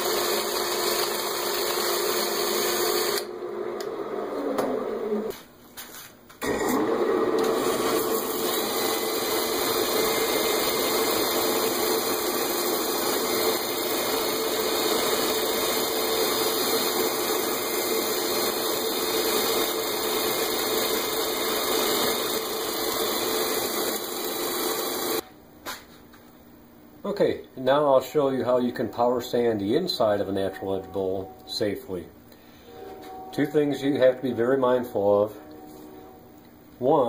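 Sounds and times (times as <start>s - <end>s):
wood lathe and drill whirring: 0.0s - 5.3s, 6.4s - 25.2s.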